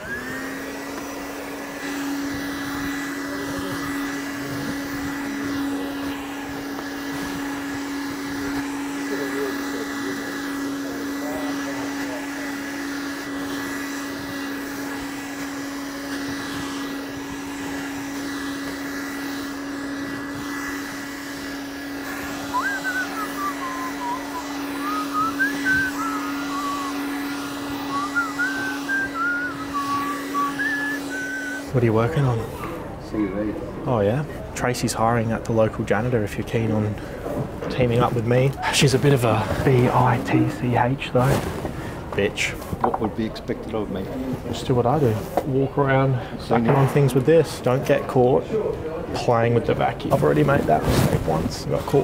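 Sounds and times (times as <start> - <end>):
handheld vacuum cleaner running: 0.0 - 33.0, 35.8 - 45.5
person whistling: 22.5 - 27.2, 27.8 - 31.7.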